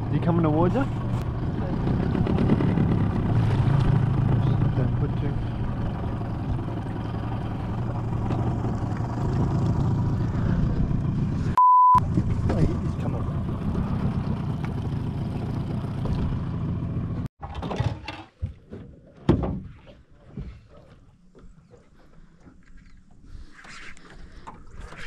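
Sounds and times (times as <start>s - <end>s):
outboard motor running: 0.0s - 17.3s
censor bleep: 11.6s - 12.0s.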